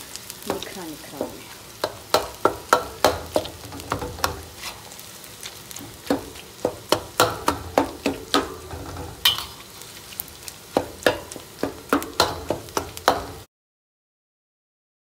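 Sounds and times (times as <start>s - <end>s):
meat sizzling in a pan: 0.0s - 13.5s
metal spoon knocking a pan: 1.2s - 4.6s, 5.8s - 9.6s, 10.7s - 13.4s.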